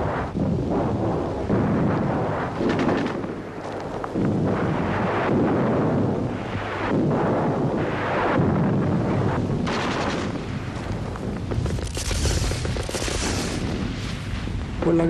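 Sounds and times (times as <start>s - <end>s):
heavy explosions: 0.0s - 15.0s
rapid crackling gunshots: 1.5s - 3.6s, 4.5s - 10.8s, 11.6s - 14.4s.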